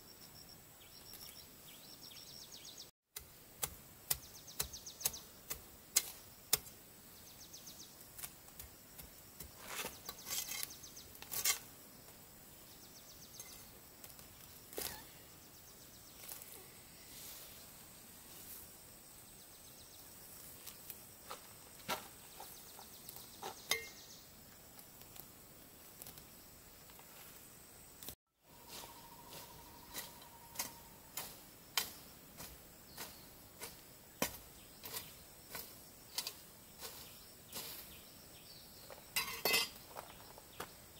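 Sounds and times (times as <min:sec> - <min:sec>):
background hiss: 0:00.0 - 0:40.9
faint steady high tone: 0:28.4 - 0:31.1
insect-like trills: 0:28.4 - 0:31.4.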